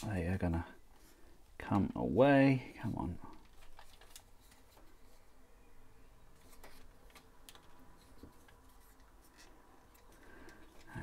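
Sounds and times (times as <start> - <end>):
plastic parts clicking: 3.2 - 5.2, 6.4 - 11.0.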